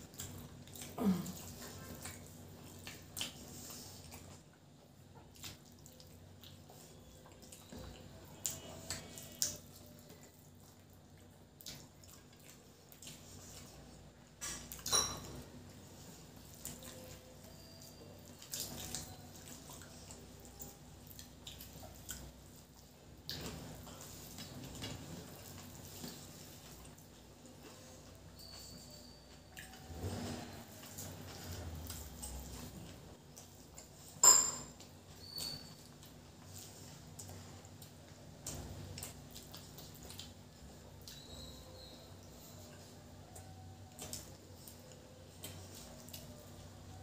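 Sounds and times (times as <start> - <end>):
mouths chewing: 34.9 - 47.0.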